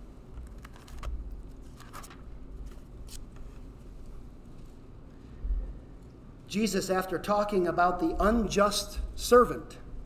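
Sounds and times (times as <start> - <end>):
pages turning: 0.4 - 3.7.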